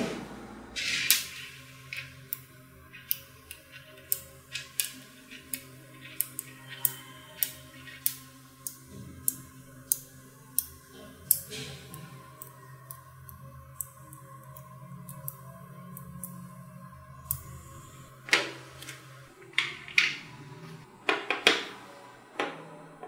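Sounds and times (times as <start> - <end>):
magnet balls clicking together: 0.8 - 18.0.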